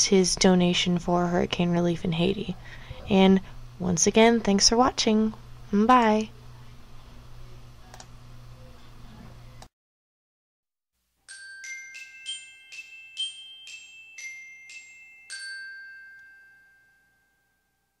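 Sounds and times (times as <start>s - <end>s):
glockenspiel jingle: 11.3s - 18.0s.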